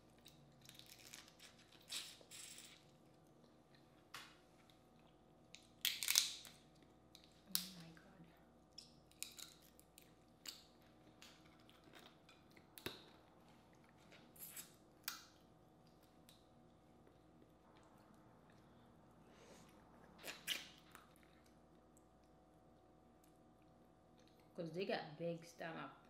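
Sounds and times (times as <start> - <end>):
crawfish shells cracking: 0.2 - 2.8, 5.5 - 7.9, 8.8 - 13.1
chewing: 8.7 - 14.8.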